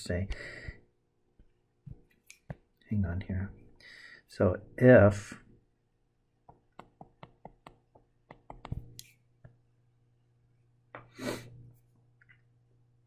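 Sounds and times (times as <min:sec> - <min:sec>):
stylus tapping on touchscreen: 0:06.4 - 0:09.6.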